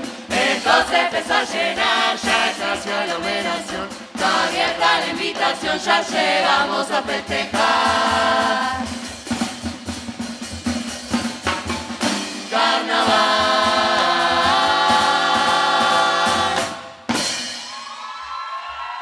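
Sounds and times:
chorus singing together: 0.0 - 9.2, 12.0 - 17.1
driving drum beat: 0.0 - 18.1.

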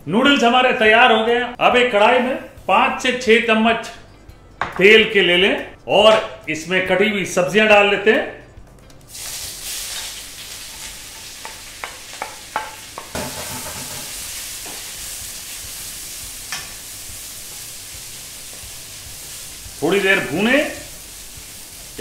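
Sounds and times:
vegetables sizzling in hot oil: 9.1 - 22.0
wooden spatula clacking on pan: 11.4 - 14.8.

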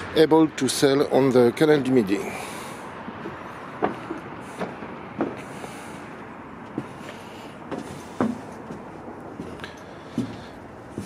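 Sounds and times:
footsteps on metal deck: 2.3 - 11.0.

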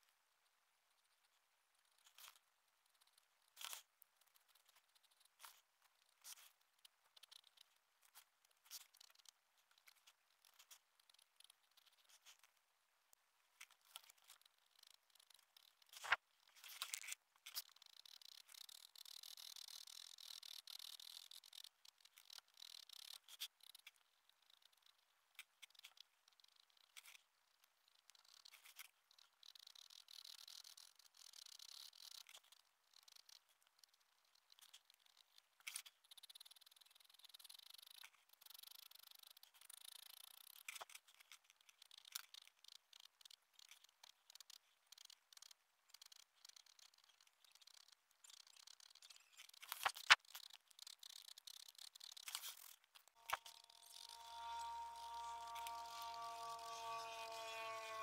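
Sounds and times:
sharp ticks: 17.4 - 58.0
pen scratching on paper: 52.2 - 58.0.

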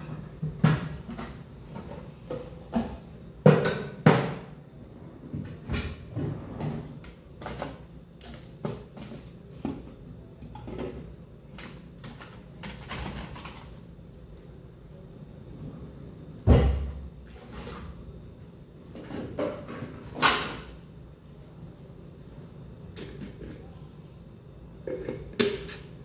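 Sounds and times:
kitchenware clinking and knocking: 0.0 - 4.6.

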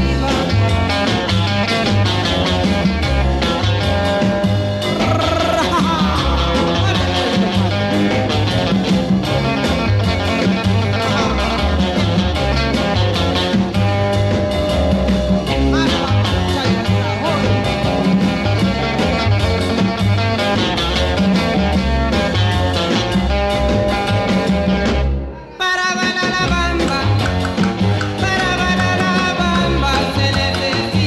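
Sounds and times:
bass beat: 0.0 - 25.2, 26.2 - 31.0
upbeat music with guitar: 0.0 - 31.0.

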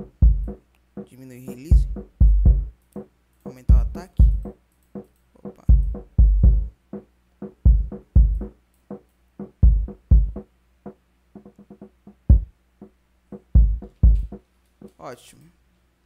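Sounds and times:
deep kick drum thumps: 0.0 - 0.6, 1.5 - 2.7, 3.6 - 4.5, 5.5 - 6.7, 7.4 - 8.5, 9.4 - 10.4, 12.1 - 12.5, 13.3 - 14.4.

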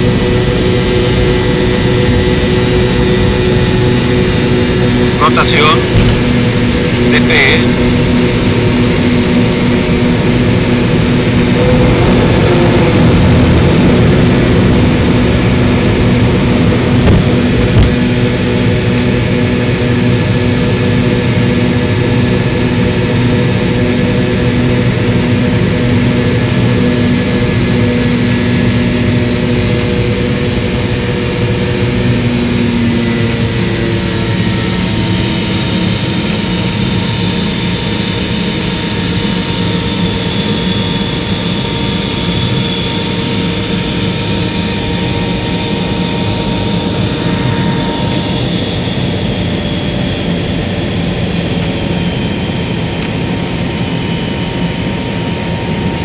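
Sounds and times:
jet engines roaring: 0.0 - 56.0.

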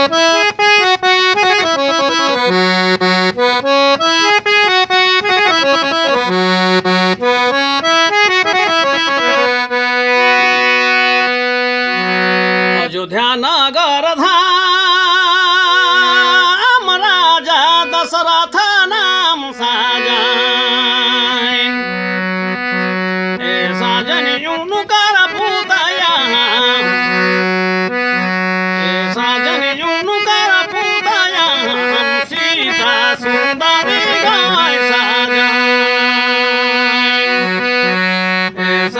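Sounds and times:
free-reed instrument playing chords: 0.0 - 12.9, 19.7 - 38.9
wavering melody with vibrato: 15.3 - 38.9.

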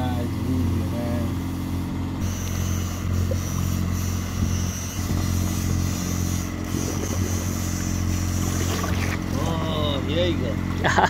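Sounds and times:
boat engine droning: 0.0 - 11.0
thin high whine: 0.1 - 10.5.

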